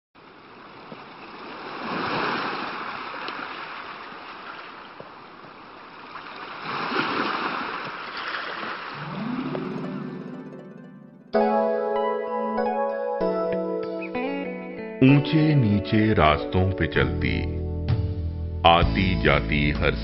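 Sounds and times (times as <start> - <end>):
sea waves rushing: 0.2 - 10.3.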